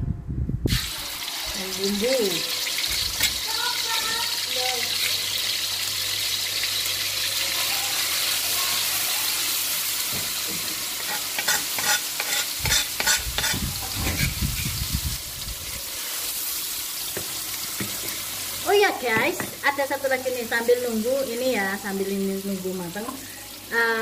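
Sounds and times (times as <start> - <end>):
spice paste sizzling in oil: 0.7 - 24.0
spatula scraping a wok: 2.6 - 3.5, 4.9 - 5.4, 10.3 - 14.9.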